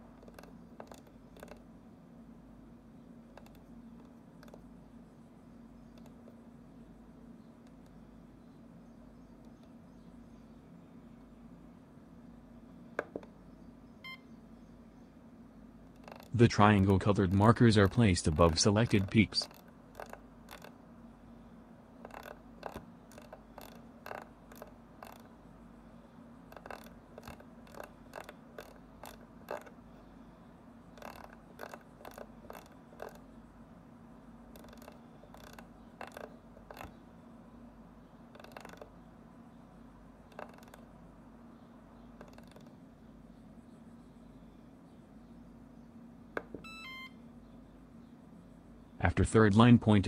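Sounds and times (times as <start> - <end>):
faint steady hum: 0.0 - 50.0
rotary knob clicking through detents: 16.0 - 20.8, 22.0 - 25.3, 30.9 - 33.2, 34.5 - 37.0, 38.3 - 38.9, 40.3 - 40.9, 42.2 - 42.7.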